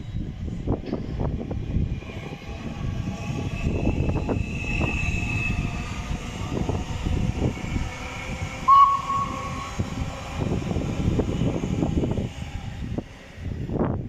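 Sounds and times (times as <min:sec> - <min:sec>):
train wheels rumbling on rails: 0:00.0 - 0:14.0
brief high tone: 0:08.7 - 0:09.7.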